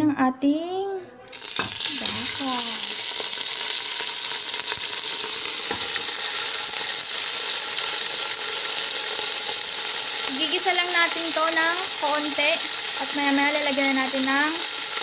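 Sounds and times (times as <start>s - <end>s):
meat sizzling in hot oil: 1.3s - 15.0s.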